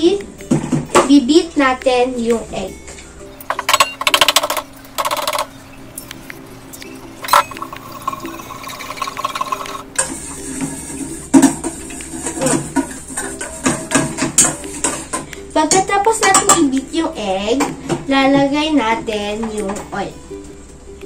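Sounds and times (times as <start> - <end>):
liquid egg sloshing: 7.1 - 13.4
whisk clinking in metal bowl: 7.2 - 10.6.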